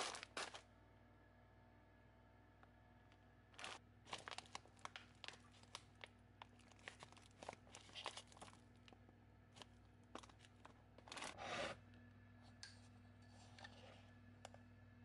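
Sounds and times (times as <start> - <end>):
plastic pouch crinkling: 0.0 - 0.6, 3.6 - 9.0, 9.6 - 11.4.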